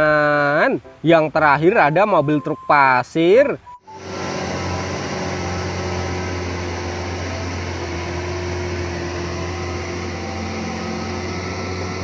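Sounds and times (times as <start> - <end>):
diesel truck engine running: 3.8 - 12.0.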